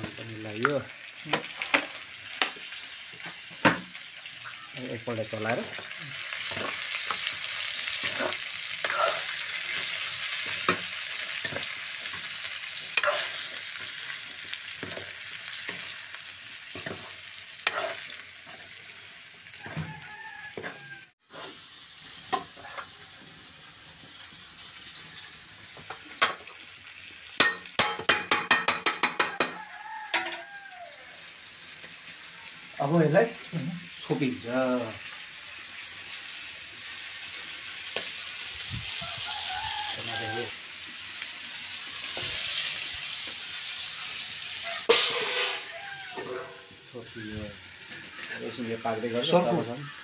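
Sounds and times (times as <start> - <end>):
vegetables sizzling in a wok: 0.0 - 50.0
metal ladle scraping a pan: 6.4 - 14.0, 16.7 - 19.0, 22.3 - 23.0, 44.9 - 46.9
sharp metal taps: 27.4 - 29.6.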